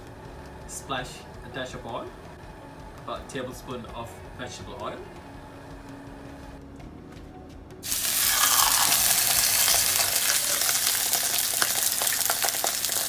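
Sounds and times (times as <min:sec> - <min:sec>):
meat sizzling in hot oil: 0:07.8 - 0:13.0.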